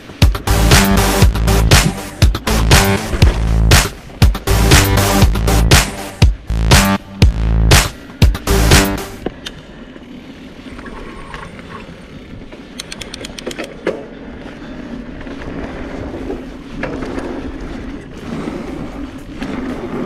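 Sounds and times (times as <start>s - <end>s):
tyres rolling on dirt: 0.0s - 5.2s, 9.2s - 20.0s
bike rattling over bumps: 0.0s - 6.0s, 7.8s - 20.0s
sharp clicks and knocks: 12.7s - 14.0s.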